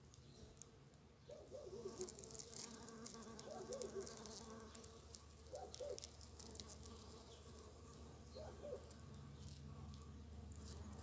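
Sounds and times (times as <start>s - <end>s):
bumblebee buzzing: 1.7s - 11.0s.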